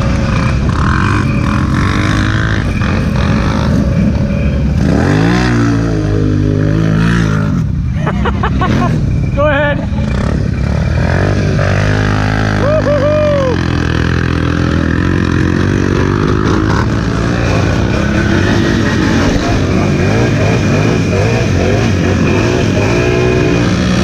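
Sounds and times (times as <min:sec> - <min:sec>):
quad bike engine under load: 0:00.0 - 0:09.1, 0:09.9 - 0:24.0.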